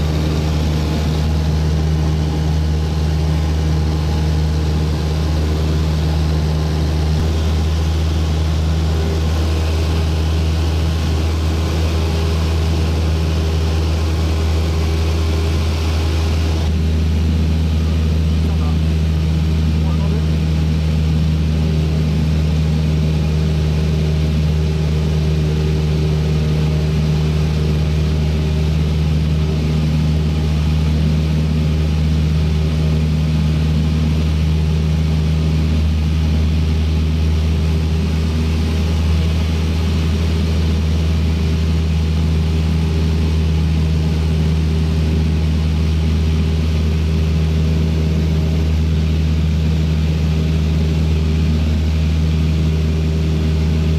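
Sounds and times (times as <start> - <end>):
propeller plane engine drone: 0.0 - 53.9.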